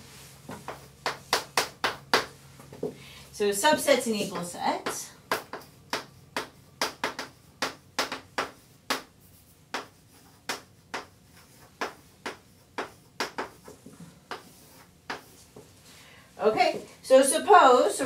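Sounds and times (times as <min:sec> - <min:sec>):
chalk tapping and scratching: 0:00.3 - 0:02.7, 0:04.2 - 0:15.8.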